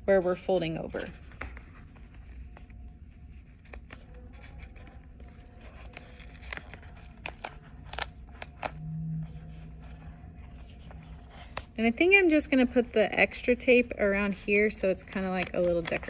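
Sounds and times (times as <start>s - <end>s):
low room hum: 0.0s - 16.0s
tape crackling and ticking: 1.3s - 12.2s.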